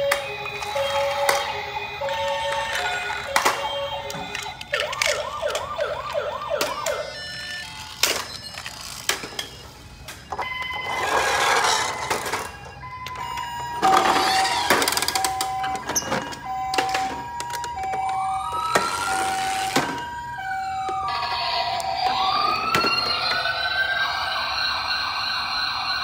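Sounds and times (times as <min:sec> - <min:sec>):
two-tone toy siren: 0:00.0 - 0:26.0
rising and falling siren wail: 0:00.1 - 0:07.9, 0:10.5 - 0:26.0
plastic toy clicks and knocks: 0:02.3 - 0:07.0, 0:11.6 - 0:19.0.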